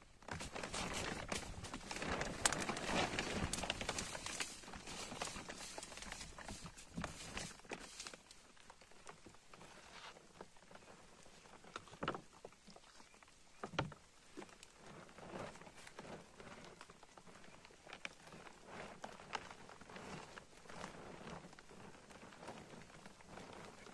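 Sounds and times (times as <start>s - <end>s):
plastic tarp crackling: 0.0s - 12.3s, 14.4s - 23.9s
dry leaves rustling: 0.3s - 10.2s.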